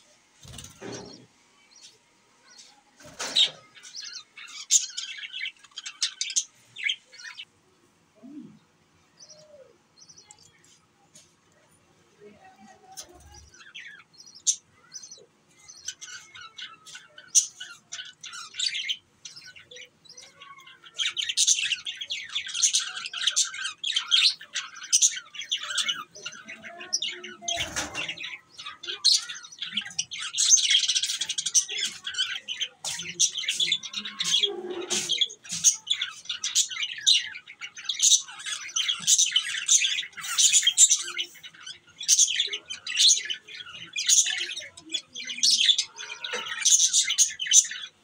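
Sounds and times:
budgerigars chirping and chattering: 0:00.4 - 0:07.5, 0:09.2 - 0:11.3, 0:12.2 - 0:48.0.

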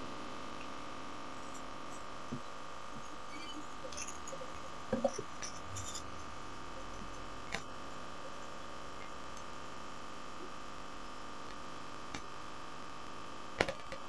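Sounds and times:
thin high tone: 0:03.0 - 0:07.0.

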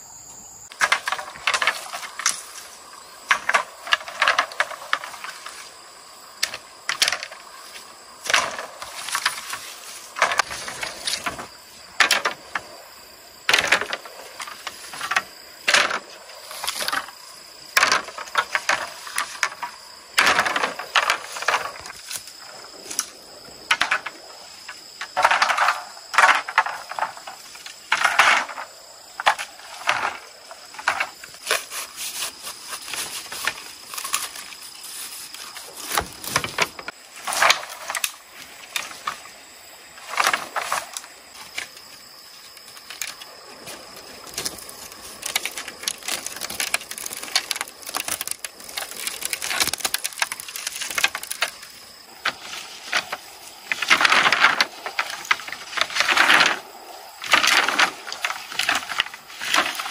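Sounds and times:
bamboo poles knocking together: 0:00.7 - 0:05.7, 0:06.4 - 0:12.7, 0:13.5 - 0:23.1, 0:23.7 - 0:39.2, 0:40.0 - 0:41.8, 0:42.5 - 0:56.6, 0:57.2 - 0:59.9
dry leaves rustling: 0:42.6 - 0:56.6.

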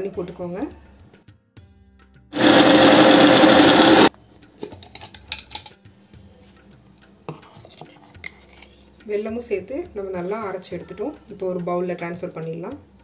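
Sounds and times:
mixer grinder running: 0:02.4 - 0:04.1.

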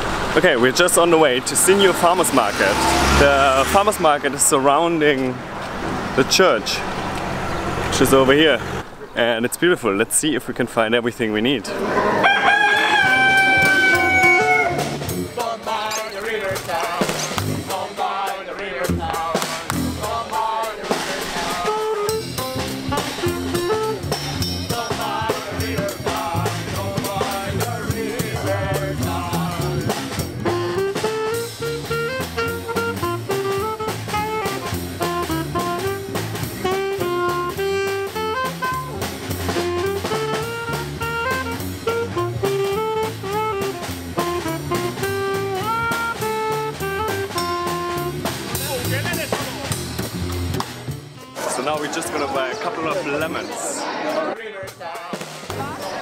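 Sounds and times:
double bass: 0:00.0 - 0:09.2, 0:11.7 - 0:15.8, 0:16.5 - 0:17.7, 0:18.8 - 0:20.2, 0:20.9 - 0:51.3
saxophone melody: 0:12.5 - 0:15.3, 0:21.5 - 0:48.8
drum kit: 0:12.6 - 0:53.6, 0:54.6 - 0:56.0.

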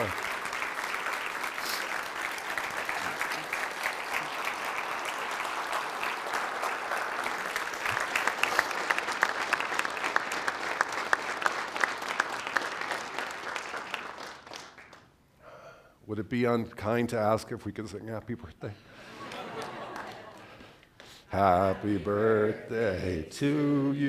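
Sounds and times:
audience applauding: 0:00.0 - 0:15.1, 0:19.2 - 0:20.6.

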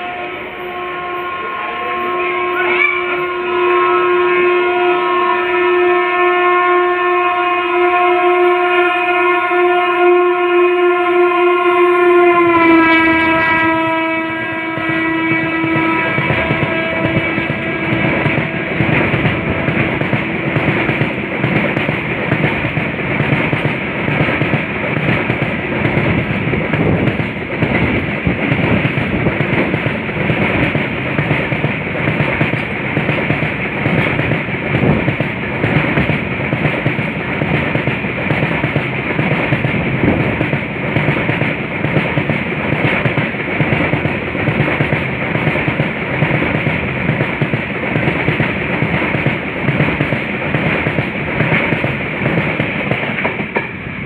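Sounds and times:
locomotive horn: 0:00.0 - 0:23.2
train wagons rolling past: 0:12.6 - 0:54.0.

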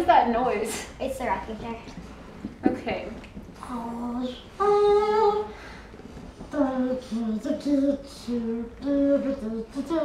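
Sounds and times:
girl singing wordless tune: 0:03.6 - 0:05.6, 0:06.5 - 0:10.0.

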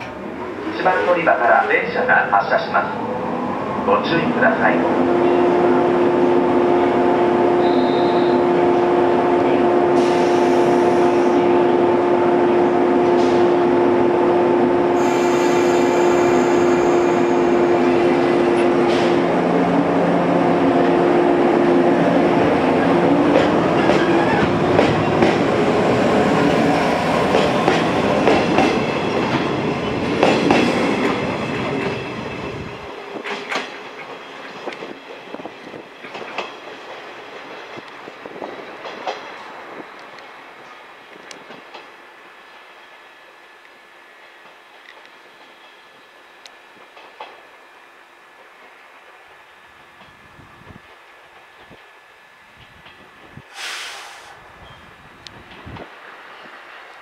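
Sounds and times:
train rushing: 0:00.0 - 0:43.6
electric train hum: 0:00.0 - 0:57.0.

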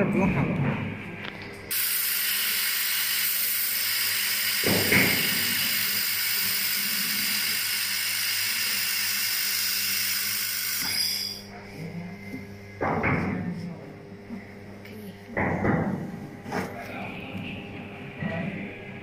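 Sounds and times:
laser welder hiss with spatter: 0:01.7 - 0:11.4.

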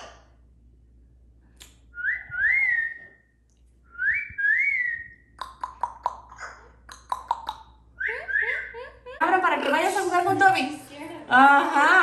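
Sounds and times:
parrot whistling rising notes: 0:02.0 - 0:03.2, 0:03.9 - 0:05.2.

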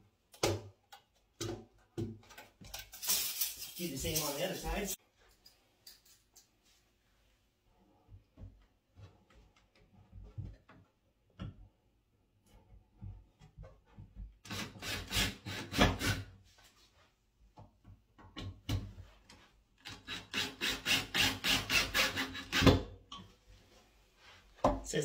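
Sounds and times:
cordless drill driving screws: 0:19.9 - 0:22.7.

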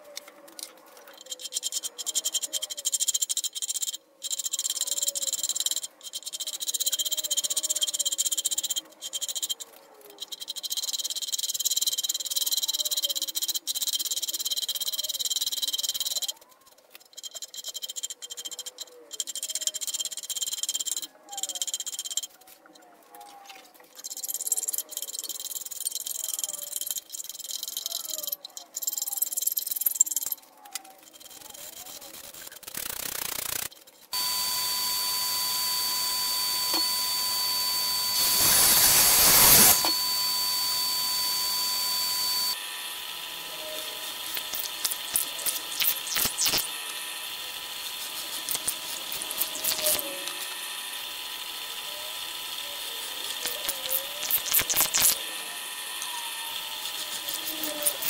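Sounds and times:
pillar drill boring wood: 0:31.0 - 0:58.0
mitre saw whining: 0:31.2 - 0:58.0
dust extractor running: 0:34.2 - 0:53.4.

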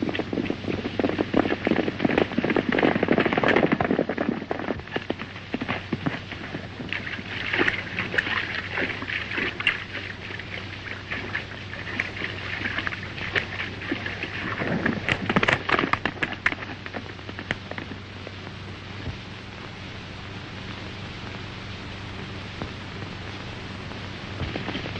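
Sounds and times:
horse splashing through river: 0:00.0 - 0:17.6
horse hoofbeats galloping: 0:00.0 - 0:18.0
steady low hum: 0:00.0 - 0:24.9.

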